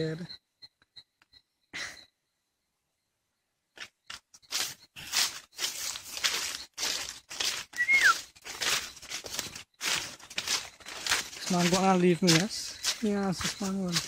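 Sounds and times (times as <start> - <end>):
brushing through undergrowth: 4.1 - 14.0
footsteps crunching through dry leaves: 4.1 - 14.0
falling whistled note: 7.8 - 8.2.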